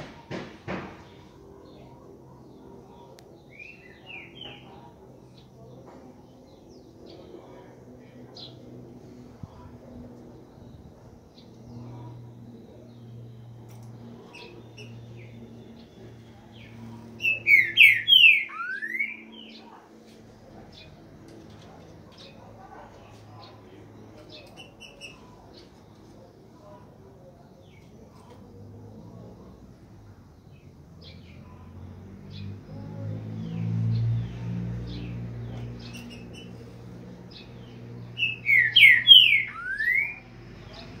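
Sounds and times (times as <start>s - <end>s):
bird singing whistled notes: 17.2s - 19.6s, 38.2s - 40.3s.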